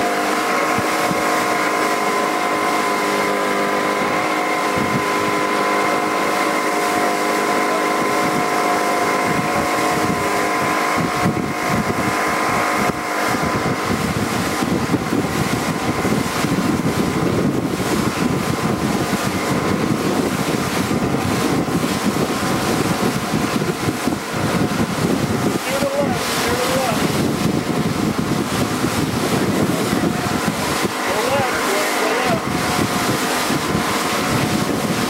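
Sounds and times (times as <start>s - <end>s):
motorboat engine humming: 0.0s - 35.0s
wind buffeting microphone: 0.0s - 35.0s.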